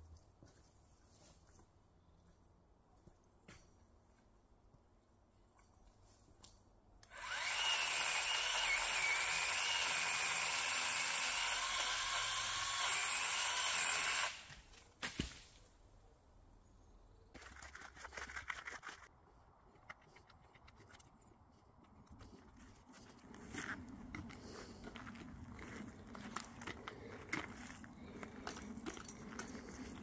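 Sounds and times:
pole saw whining: 7.0s - 14.7s.

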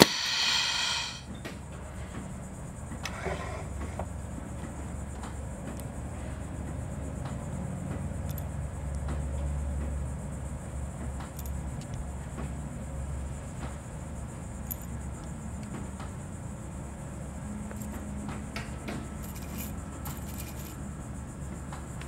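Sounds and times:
machine hum: 0.0s - 1.3s
light clicks of small parts: 5.1s - 6.0s, 7.2s - 9.3s, 11.2s - 12.6s, 17.7s - 20.8s.

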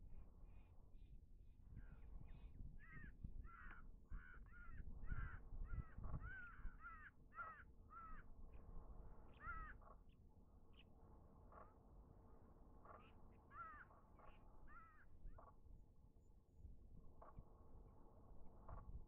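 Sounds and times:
crows cawing: 2.8s - 8.3s, 9.3s - 9.9s, 12.8s - 14.0s, 14.7s - 15.1s.

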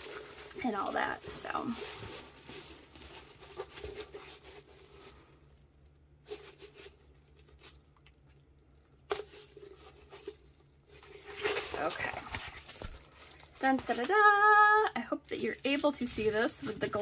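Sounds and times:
canvas rustling and crinkling: 0.0s - 5.6s, 9.2s - 17.0s.

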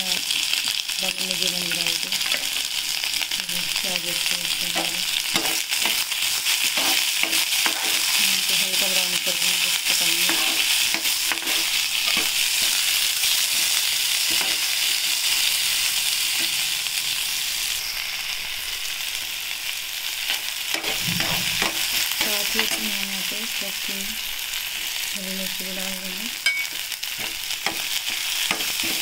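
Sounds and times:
onions sizzling in hot oil: 0.0s - 29.0s
metal spoon scraping a pan: 4.6s - 8.6s, 9.8s - 15.1s, 26.4s - 29.0s.

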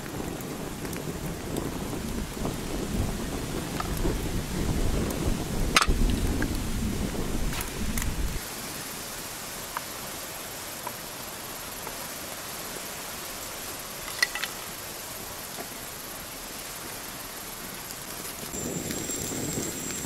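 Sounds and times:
low fire rumble: 0.0s - 8.4s, 15.1s - 20.0s
fire crackles: 0.0s - 20.0s
grill fire hissing: 0.0s - 20.0s.

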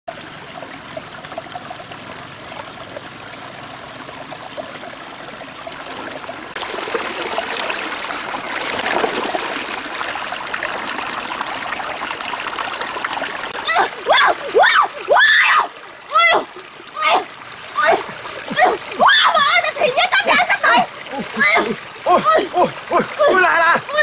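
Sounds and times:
stream babbling over stones: 0.1s - 24.0s.

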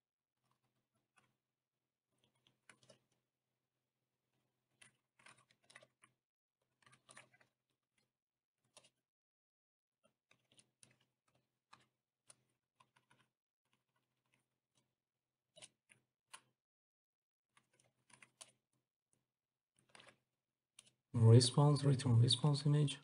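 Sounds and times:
faint keyboard typing: 4.7s - 6.2s.

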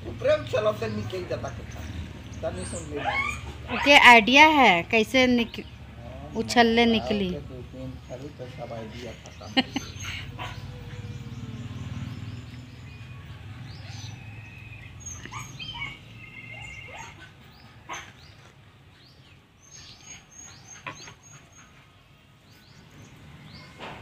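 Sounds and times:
birds chirping: 0.0s - 24.0s
bird trill: 9.5s - 18.0s.

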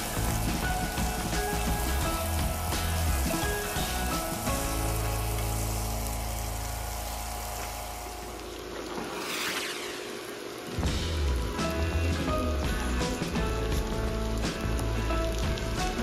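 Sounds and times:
background music: 0.0s - 7.5s, 10.7s - 16.0s
food sizzling in a pan: 0.0s - 16.0s.

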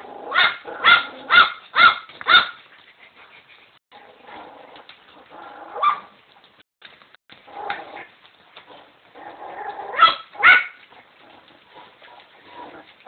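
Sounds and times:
dog barking: 0.3s - 2.6s, 5.8s - 6.1s, 9.9s - 10.8s.

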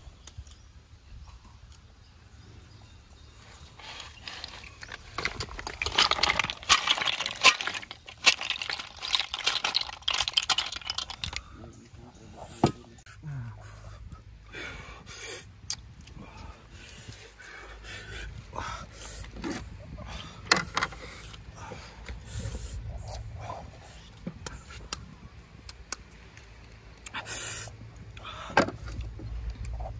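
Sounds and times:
snail shells clattering: 4.2s - 11.6s.

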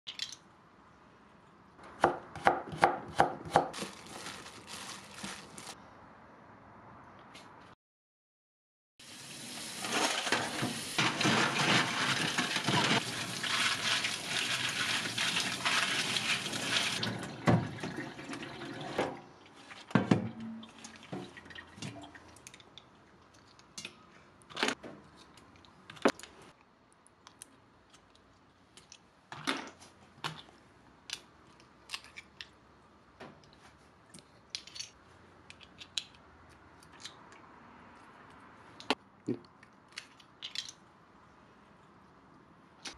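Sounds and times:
water splashing in a steel bowl: 9.5s - 19.1s.

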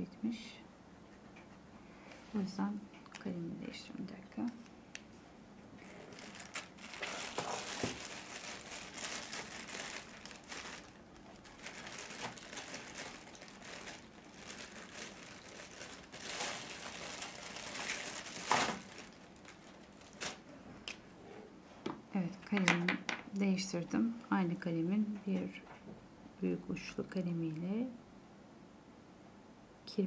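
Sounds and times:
plastic bag crinkling: 5.8s - 20.5s.

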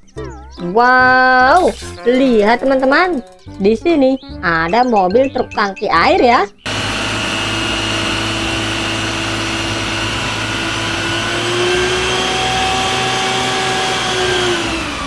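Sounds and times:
truck engine running: 6.6s - 15.0s
pump whine: 6.7s - 15.0s.

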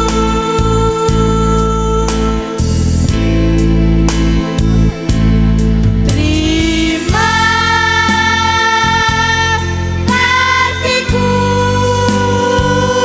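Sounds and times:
instrumental accompaniment with bass: 0.0s - 13.0s
choir singing held notes: 4.5s - 13.0s.

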